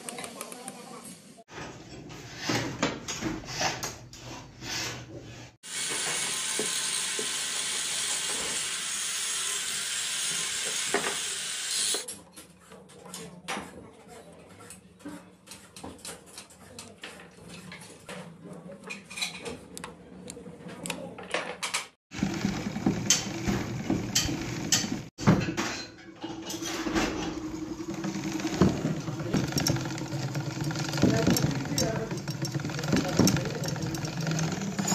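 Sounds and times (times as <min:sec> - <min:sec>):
sewing machine clatter: 0:21.7 - 0:25.2, 0:26.5 - 0:34.9.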